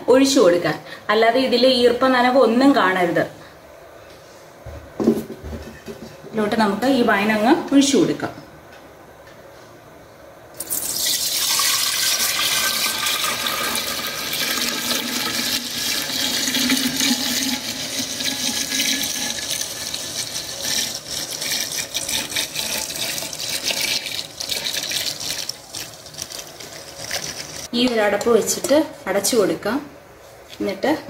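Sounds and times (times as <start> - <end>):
wine pouring into a jar: 10.6 - 27.7.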